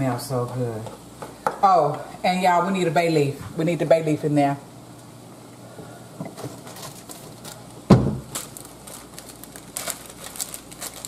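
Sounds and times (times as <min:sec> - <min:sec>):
plastic bag crinkling: 0:06.4 - 0:11.0
loud thump: 0:07.9 - 0:08.3.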